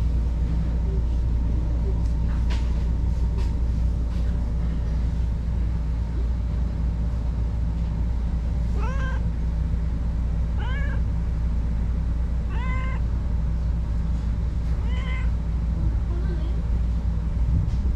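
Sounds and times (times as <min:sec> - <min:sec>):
cat meowing: 0:08.7 - 0:09.3, 0:10.6 - 0:11.1, 0:12.4 - 0:13.1, 0:14.8 - 0:15.4.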